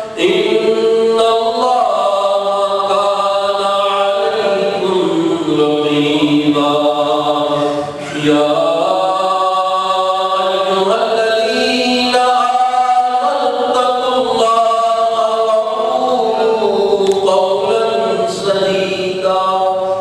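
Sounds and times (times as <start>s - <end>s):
man chanting: 0.0s - 20.0s.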